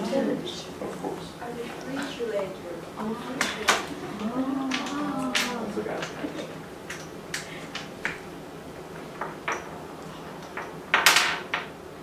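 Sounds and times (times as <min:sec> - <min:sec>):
wooden rods clicking on tabletop: 0:03.4 - 0:08.2, 0:09.1 - 0:09.8, 0:10.4 - 0:11.7.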